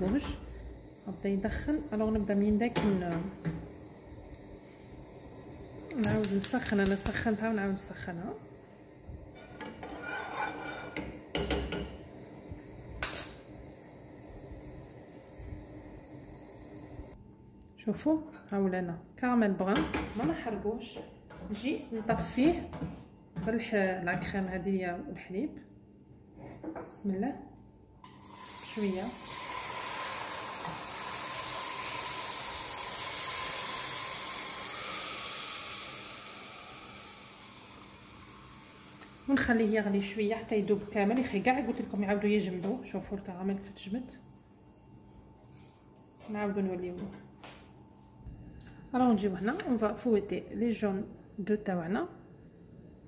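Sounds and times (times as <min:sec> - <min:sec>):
caramel hissing and steaming: 0:00.4 - 0:09.4, 0:12.0 - 0:17.2, 0:28.1 - 0:42.5.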